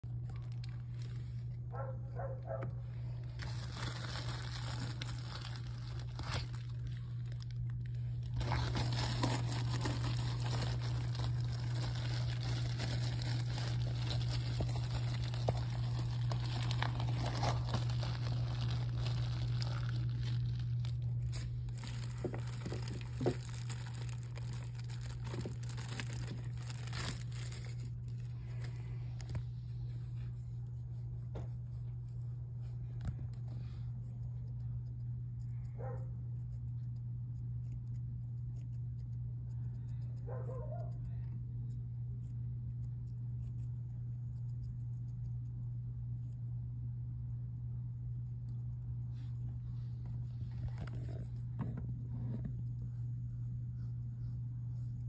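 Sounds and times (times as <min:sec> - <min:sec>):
steady low hum: 0:00.0 - 0:55.0
rustling in paper bedding: 0:03.0 - 0:33.7.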